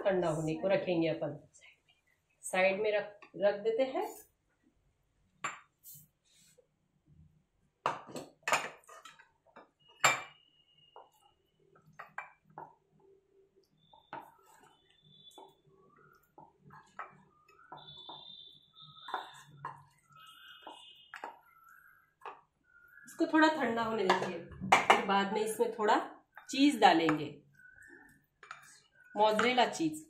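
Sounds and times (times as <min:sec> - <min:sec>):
wooden spatula knocking and scraping: 0:07.8 - 0:12.8, 0:13.9 - 0:22.5, 0:23.6 - 0:25.1, 0:28.4 - 0:29.8
glass bowl clinking on stone: 0:10.0 - 0:10.4.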